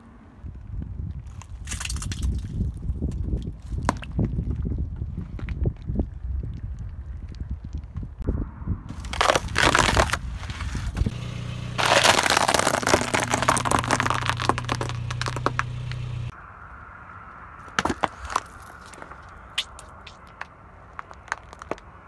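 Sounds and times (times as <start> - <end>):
plastic object cracking: 9.0 - 10.2, 11.8 - 15.7
plastic tub of pasta crackling: 9.0 - 10.2, 11.8 - 15.6
foam tray cracking under tyre: 9.0 - 11.1, 11.8 - 15.9
car engine hum: 9.0 - 16.4.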